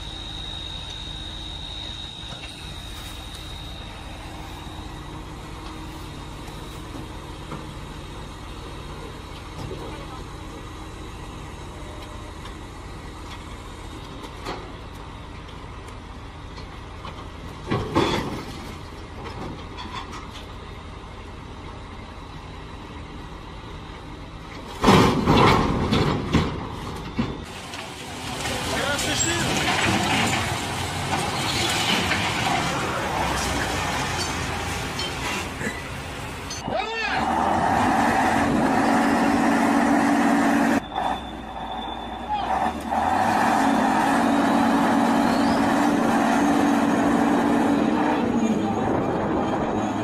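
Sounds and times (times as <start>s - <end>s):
tow truck engine running: 0.0s - 50.0s
heavy truck crashing onto wheels: 17.0s - 20.5s, 24.6s - 36.7s.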